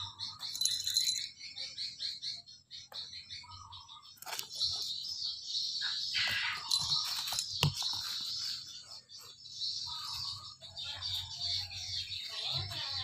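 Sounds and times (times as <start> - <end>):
birds chirping: 0.0 - 13.0
kittens scuffling and rustling: 6.2 - 9.1.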